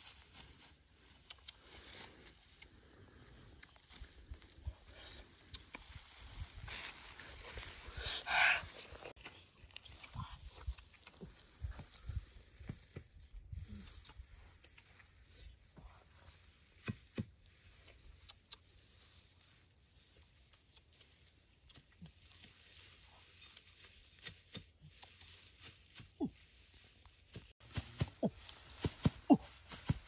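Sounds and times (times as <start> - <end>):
dry grass and leaves rustling: 0.0 - 30.0
sharp snaps and clicks: 1.1 - 1.7, 5.4 - 6.1.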